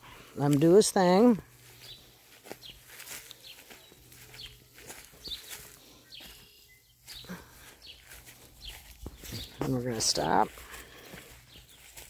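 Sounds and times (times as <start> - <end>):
footsteps swishing through grass: 0.5 - 12.0.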